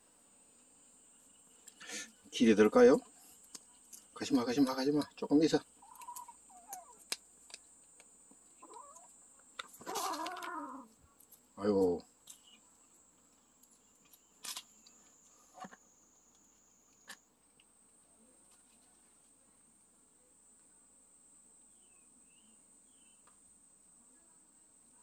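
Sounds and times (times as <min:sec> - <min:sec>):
high-pitched insect trill: 0:00.9 - 0:07.2.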